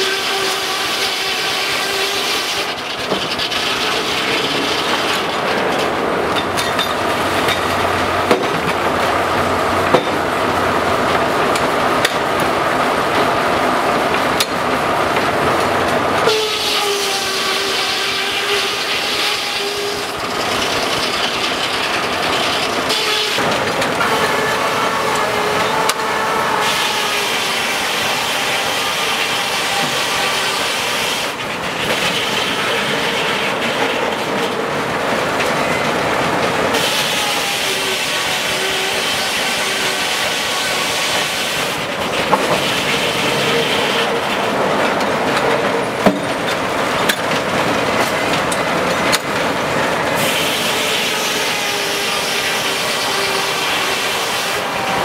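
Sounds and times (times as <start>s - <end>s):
machinery clattering: 0.2s - 55.0s
saw whining: 50.2s - 55.0s.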